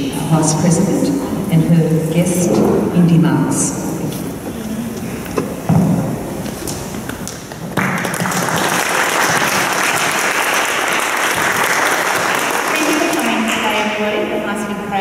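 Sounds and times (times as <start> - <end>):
audience applause: 7.7 - 14.0.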